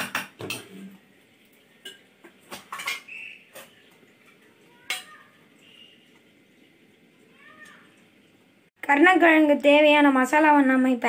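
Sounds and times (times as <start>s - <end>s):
utensils and dishes clinking: 1.8s - 5.2s.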